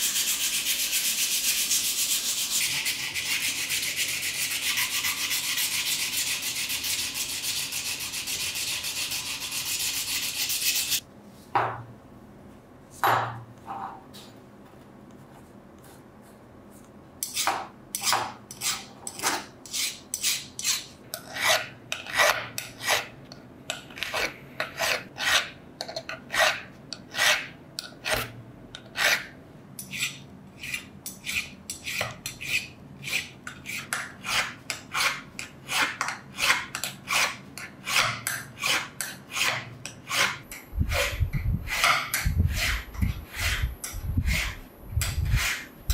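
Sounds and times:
fast rubbing on metal: 0:00.0 - 0:11.0
file scraping on steel: 0:00.0 - 0:11.0, 0:17.2 - 0:23.1, 0:24.0 - 0:45.7.

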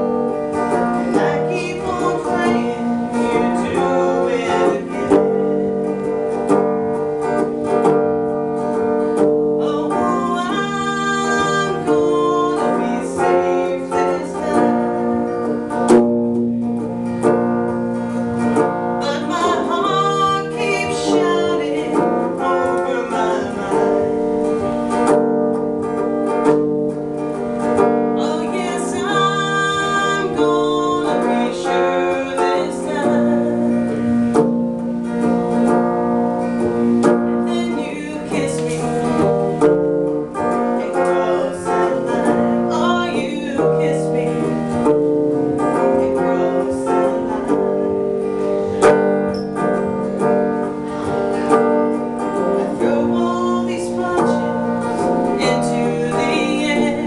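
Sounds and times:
person singing: 0:00.0 - 0:06.4, 0:08.6 - 0:16.0, 0:16.8 - 0:25.2, 0:27.4 - 0:57.0
electric guitar: 0:00.0 - 0:57.0.

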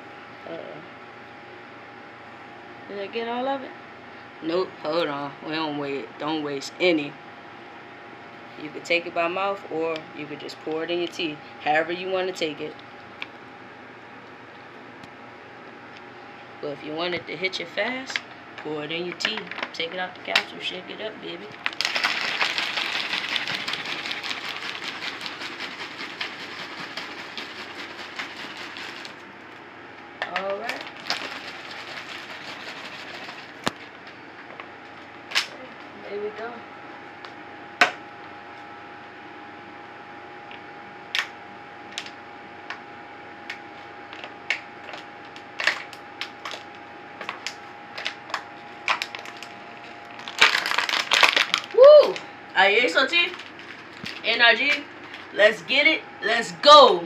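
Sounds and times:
plastic bottle crackling: 0:21.6 - 0:25.7, 0:50.2 - 0:51.8
liquid sloshing in shaken bottle: 0:21.7 - 0:29.2, 0:30.8 - 0:33.9.

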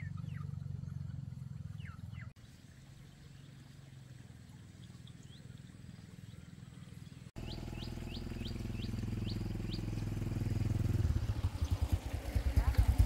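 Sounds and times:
motorbike engine running: 0:00.0 - 0:02.3, 0:07.4 - 0:13.0
bird chirping: 0:00.0 - 0:02.4, 0:04.5 - 0:12.8.

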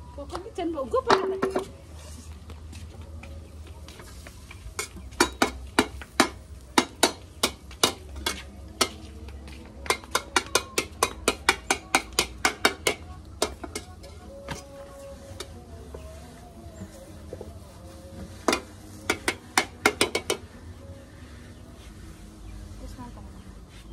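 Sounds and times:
metal spatula tapping: 0:04.8 - 0:09.0, 0:09.8 - 0:14.6.

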